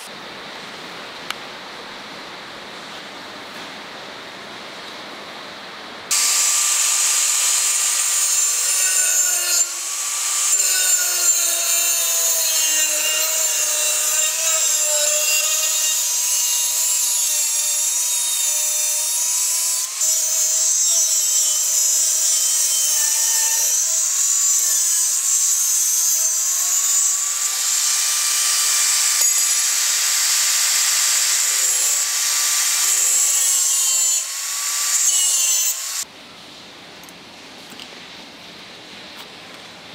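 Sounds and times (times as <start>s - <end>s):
angle grinder cutting steel: 6.1s - 36.0s.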